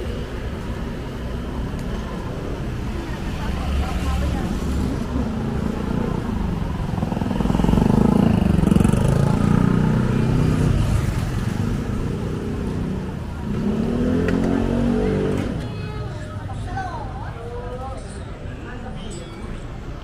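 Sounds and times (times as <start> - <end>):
motor scooters riding past: 2.2 - 16.6.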